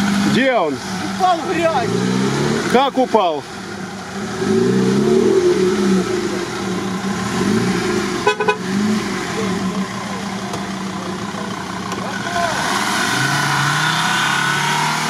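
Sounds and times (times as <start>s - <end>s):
off-road vehicle engine revving: 0.0s - 15.0s
short horn toot: 8.2s - 8.7s.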